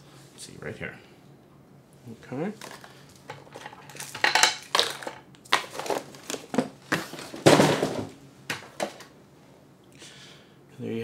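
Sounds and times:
objects clicking and clattering: 2.6s - 8.1s.

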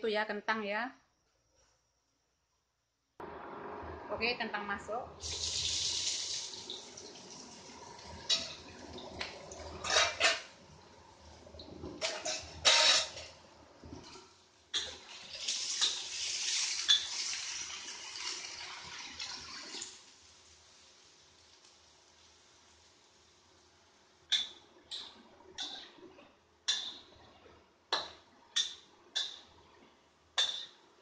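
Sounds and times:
potatoes sizzling in hot oil: 5.2s - 10.3s, 14.7s - 23.6s
metal spatula knocking on wok: 30.4s - 30.8s.

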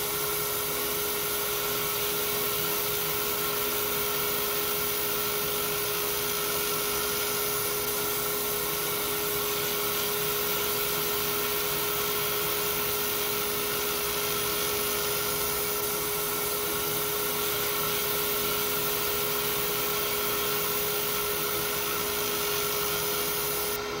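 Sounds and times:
laser engraving machine whirring: 0.0s - 24.0s.

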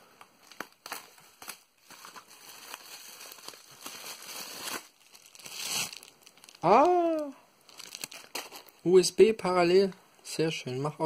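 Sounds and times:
small crackles: 0.2s - 8.8s
bubble wrap crinkling: 0.4s - 8.9s.

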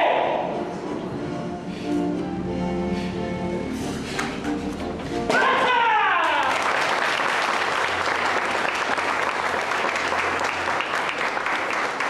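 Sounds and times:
person shouting: 0.0s - 0.5s, 5.3s - 6.6s
audience applauding: 6.0s - 12.0s.

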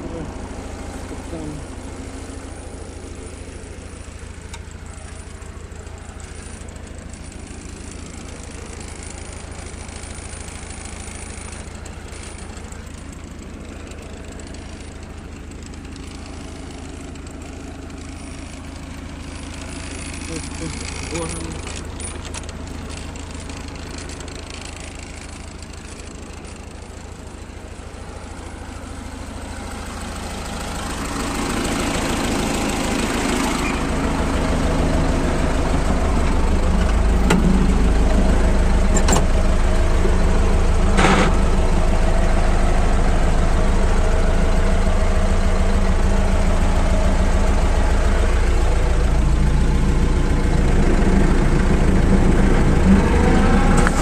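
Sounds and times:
tractor diesel engine running: 0.0s - 54.0s
sharp rattles: 1.9s - 54.0s.

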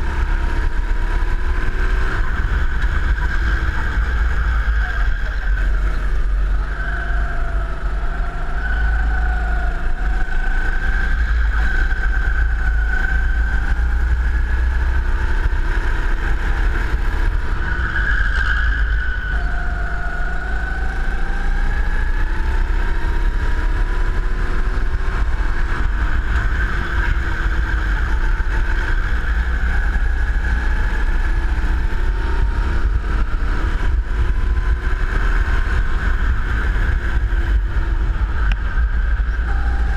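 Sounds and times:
go-kart engine: 0.0s - 39.9s
wind rumble on microphone: 20.6s - 39.9s.

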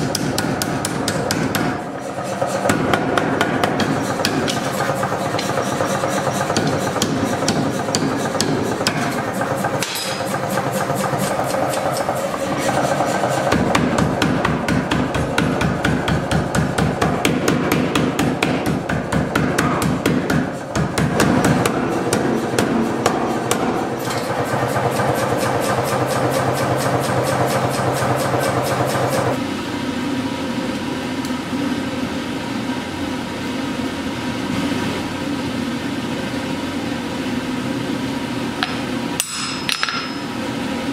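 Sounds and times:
hammer striking steel on anvil: 0.0s - 12.1s, 13.2s - 27.0s, 38.6s - 40.4s.

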